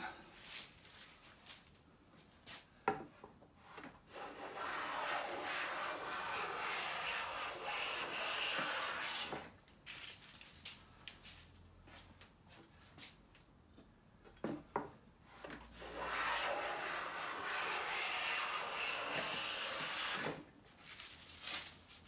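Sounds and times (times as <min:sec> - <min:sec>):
hand plane shaving wood: 0:03.8 - 0:09.5, 0:15.8 - 0:20.4.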